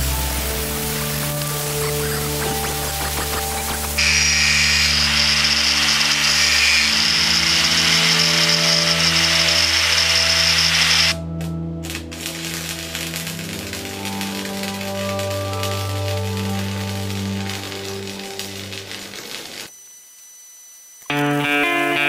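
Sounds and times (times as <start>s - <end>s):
background music: 0.0s - 19.7s, 21.1s - 22.0s
angle grinder whine: 1.6s - 11.2s, 19.3s - 22.0s.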